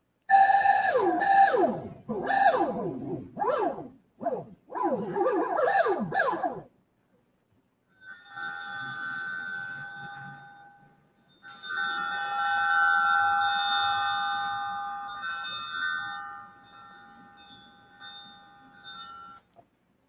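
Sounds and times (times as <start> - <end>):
theremin high steady tone: 0.3 - 6.7.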